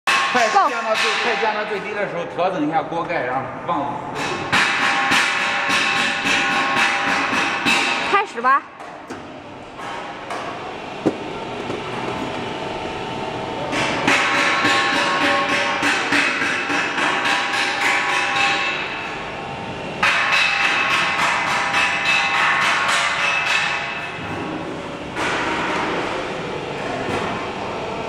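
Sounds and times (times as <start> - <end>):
mixer steady whine: 9.4 - 14.5.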